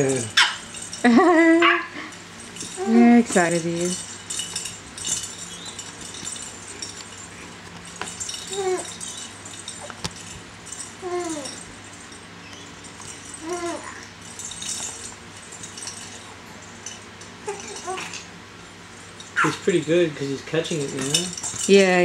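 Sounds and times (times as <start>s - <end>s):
bead toy rattling: 0.0s - 18.3s, 20.8s - 22.0s
baby squealing: 8.5s - 9.1s, 11.0s - 11.6s, 13.4s - 14.1s, 17.5s - 18.2s.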